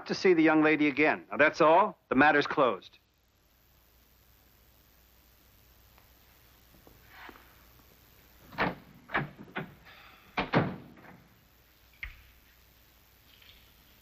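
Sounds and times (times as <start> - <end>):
door shutting: 8.5 - 9.8, 10.4 - 11.3.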